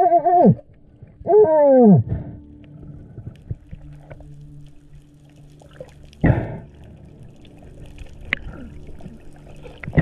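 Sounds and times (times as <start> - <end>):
faint low underwater hum: 0.0 - 10.0
bubbles and rushing water: 2.0 - 10.0.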